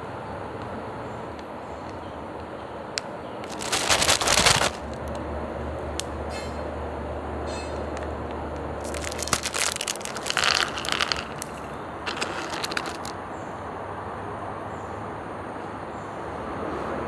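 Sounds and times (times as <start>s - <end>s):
plastic snack packet crinkling: 3.4s - 5.2s, 8.8s - 13.2s.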